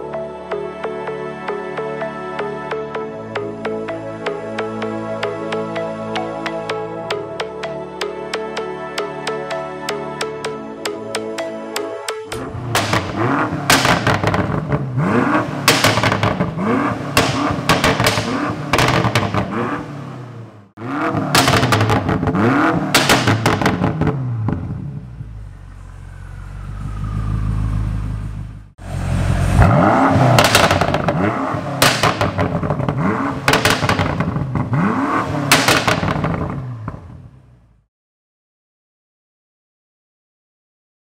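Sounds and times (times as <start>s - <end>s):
exhaust crackles and pops: 12.3s - 19.8s, 21.1s - 28.7s, 29.6s - 37.3s
car engine revving: 12.3s - 37.8s
engine low rumble: 12.4s - 37.8s.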